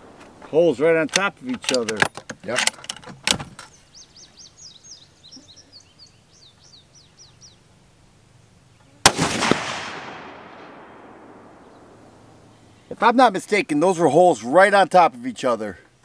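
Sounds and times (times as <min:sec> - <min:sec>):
bird chirping: 0:03.5 - 0:09.0, 0:10.6 - 0:13.2
rifle shot echoing: 0:09.0 - 0:12.6.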